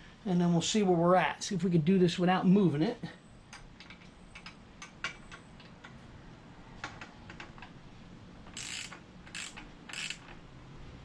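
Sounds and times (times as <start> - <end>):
hand ratchet clicking: 8.5 - 10.4.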